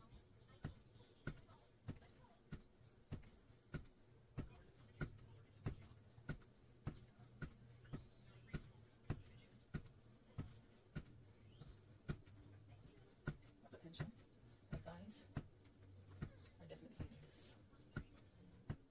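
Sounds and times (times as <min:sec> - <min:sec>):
stair stepper pedals knocking: 0:00.5 - 0:18.9.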